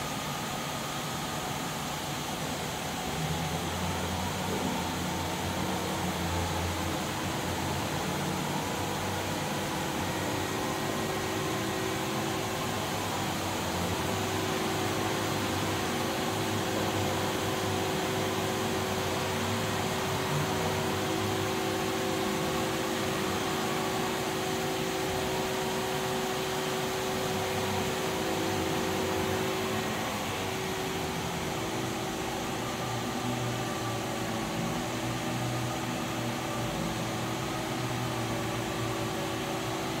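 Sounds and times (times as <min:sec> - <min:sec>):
machine hum: 0:00.0 - 0:40.0.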